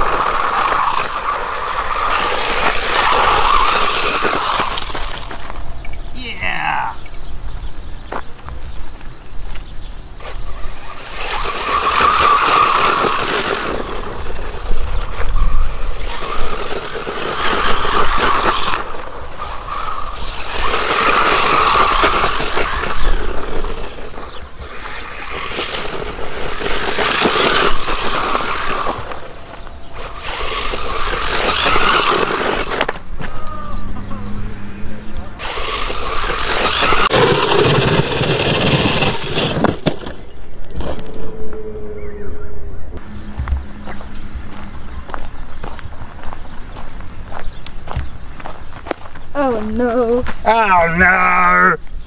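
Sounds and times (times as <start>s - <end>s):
toy car motor whine: 0.0s - 5.6s, 10.2s - 39.7s
tyres spraying gravel: 0.0s - 5.7s, 10.1s - 33.7s, 35.4s - 39.8s.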